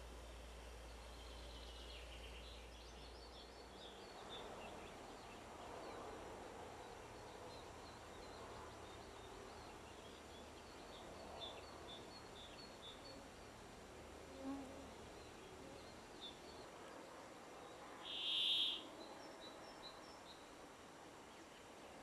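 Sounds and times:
soft background hiss: 0.0s - 22.0s
songbird chirping: 0.1s - 13.5s, 14.4s - 22.0s.

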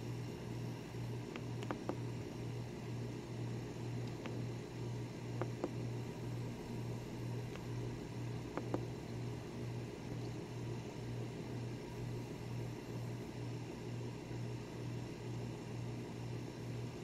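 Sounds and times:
low pulsing hum: 0.0s - 13.4s.

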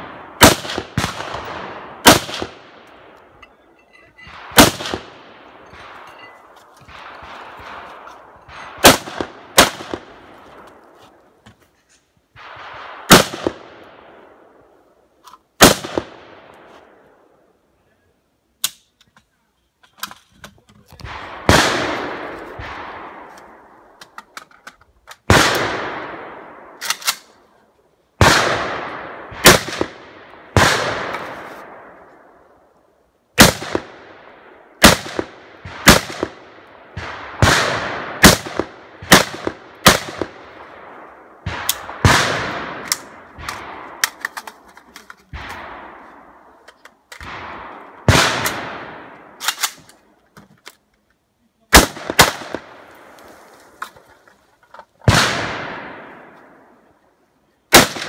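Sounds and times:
rifle shots with echo: 0.0s - 3.4s, 4.2s - 10.9s, 12.3s - 14.8s, 15.6s - 17.3s, 21.0s - 24.1s, 25.2s - 27.4s, 28.2s - 32.4s, 33.4s - 44.6s, 45.3s - 50.1s, 51.7s - 53.2s, 55.0s - 56.8s, 57.7s - 58.0s.

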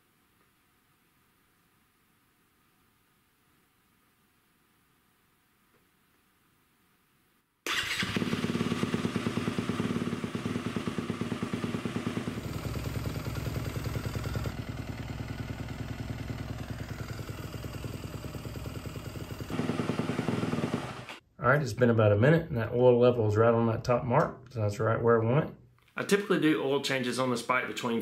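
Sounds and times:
motorcycle engine idling: 7.7s - 21.2s.

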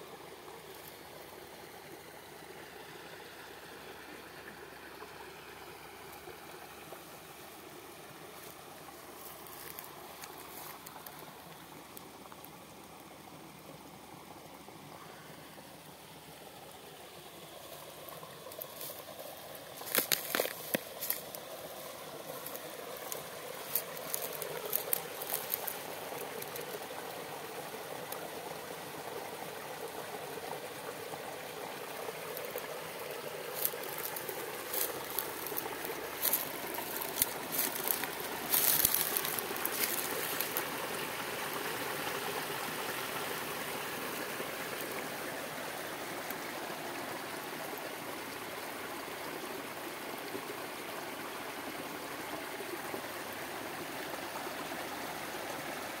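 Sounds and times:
stream trickling over branches: 0.0s - 56.0s
sharp crackles: 19.8s - 21.4s, 33.6s - 40.6s.

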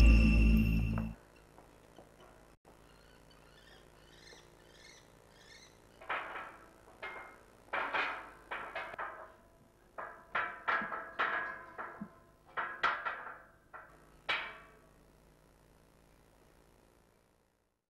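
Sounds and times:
metal ladder clanking: 6.0s - 14.8s.

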